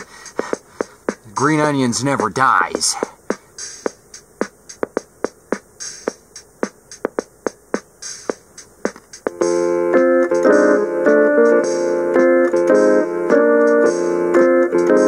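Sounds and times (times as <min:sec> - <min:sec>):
hiss-like hi-hat: 0:00.0 - 0:14.6
drum-machine beat: 0:00.0 - 0:15.0
keyboard organ chords: 0:09.3 - 0:15.0.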